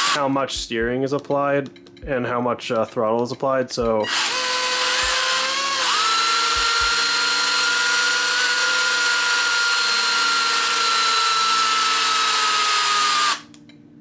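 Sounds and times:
robot drive motors whining: 4.1 - 13.4.

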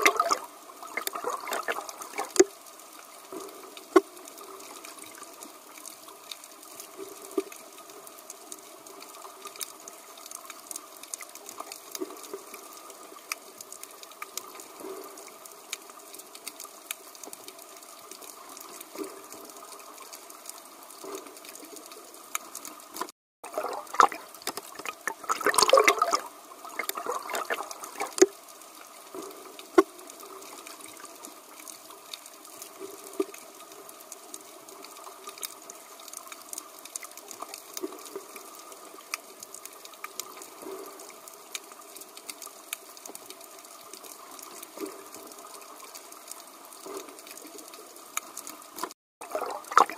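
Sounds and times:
water bubbling: 0.0 - 2.5, 23.0 - 28.3, 49.2 - 49.9
muffled underwater water hiss: 0.0 - 49.9.

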